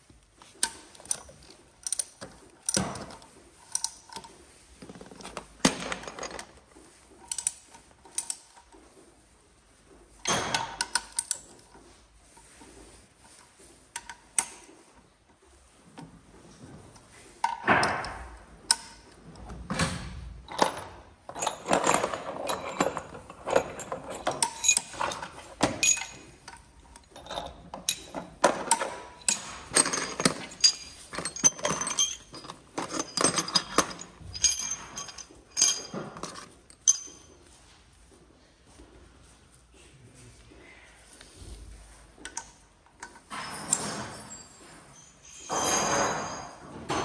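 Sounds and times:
wrenches clinking on metal engine: 0.6 - 6.6, 7.2 - 8.7, 20.5 - 37.4, 42.3 - 47.0.

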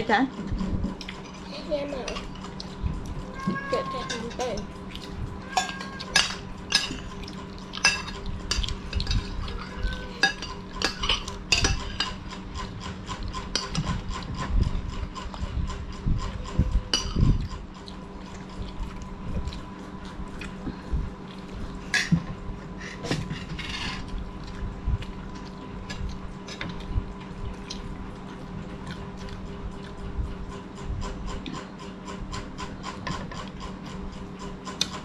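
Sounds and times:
spoons clinking on plates: 5.5 - 7.1, 7.8 - 12.3, 16.9 - 17.2.

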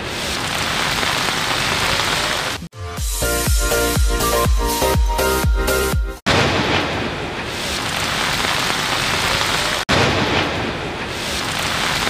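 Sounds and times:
heavy rain falling: 0.0 - 2.7, 6.3 - 12.0.

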